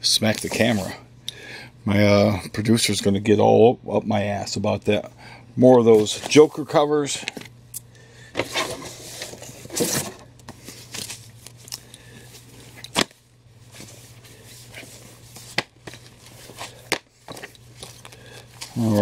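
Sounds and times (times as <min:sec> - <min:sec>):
paper and card rustling: 0:08.4 - 0:19.0.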